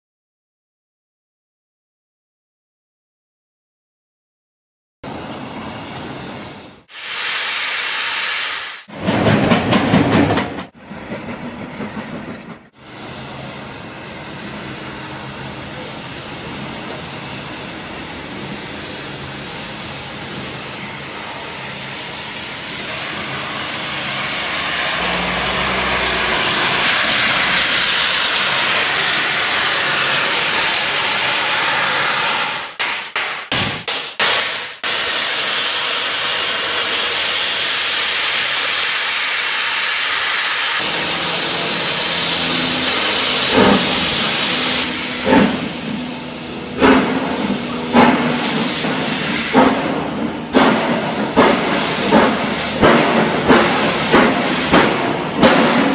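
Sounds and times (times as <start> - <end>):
steam locomotive approaching: 5.0 - 55.9
steam hissing: 5.1 - 9.0, 12.8 - 55.9
short bursts of train noise: 5.1 - 55.9.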